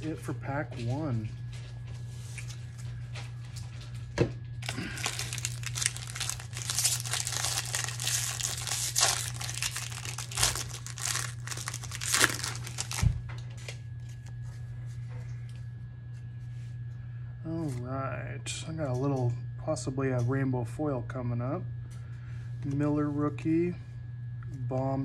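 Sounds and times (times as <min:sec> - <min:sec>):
steady low hum: 0:00.0 - 0:25.0
foil wrapper crinkling and tearing: 0:04.6 - 0:13.2.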